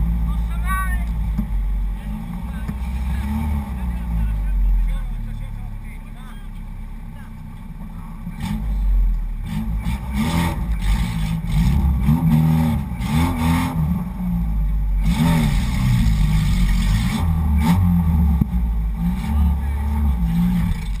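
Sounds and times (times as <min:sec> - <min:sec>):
engine revving hard: 0:09.4 - 0:14.2, 0:15.0 - 0:21.0.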